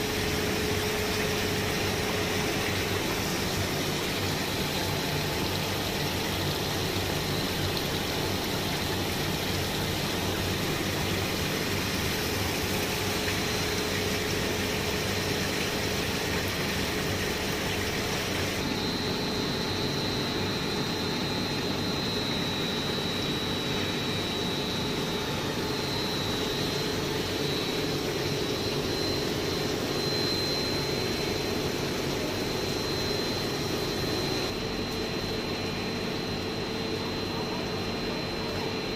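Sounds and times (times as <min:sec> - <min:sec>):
machine hum: 0:00.0 - 0:35.7
high-pitched whine: 0:17.3 - 0:38.9.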